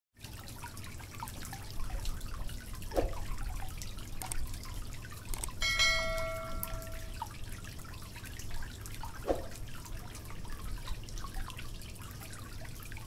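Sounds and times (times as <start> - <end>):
bell-like chime: 5.6 - 7.2.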